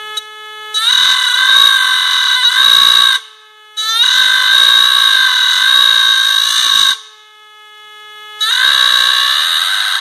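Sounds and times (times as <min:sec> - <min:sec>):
electric engraving tool whining: 0:00.6 - 0:07.0, 0:08.4 - 0:10.0.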